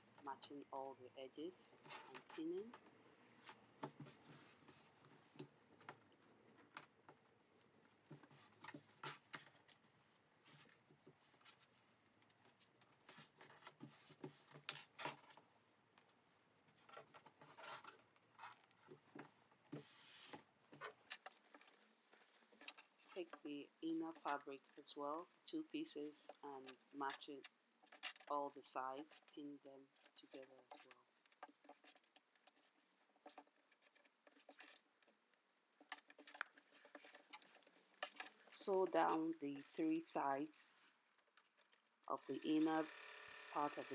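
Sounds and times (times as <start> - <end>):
fabric rustling: 3.3 - 15.4, 16.1 - 23.2
fabric rustling and ticks: 29.2 - 40.1.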